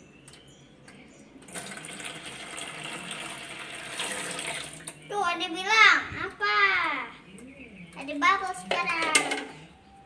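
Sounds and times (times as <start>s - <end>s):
water pouring into basin: 1.5s - 5.0s.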